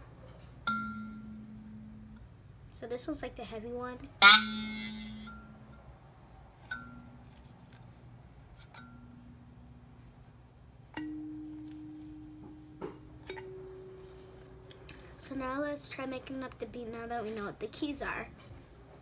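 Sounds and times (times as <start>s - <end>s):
kalimba notes plucked: 11.0s - 14.8s.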